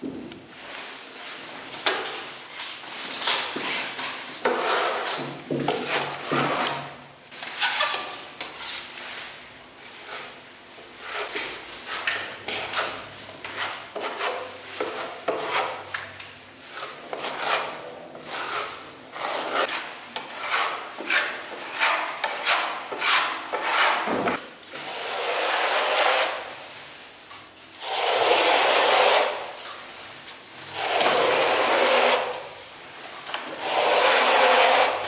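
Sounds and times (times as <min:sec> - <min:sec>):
spatula scraping wet plaster: 0:04.4 - 0:08.8, 0:11.0 - 0:15.9, 0:16.6 - 0:26.5, 0:30.6 - 0:32.6, 0:33.3 - 0:35.0.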